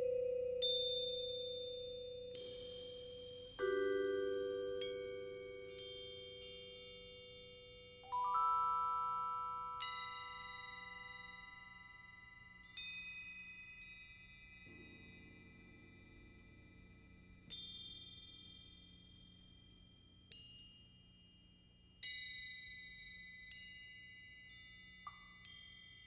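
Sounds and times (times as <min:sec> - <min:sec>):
metal mallet percussion ringing: 0:00.0 - 0:13.9.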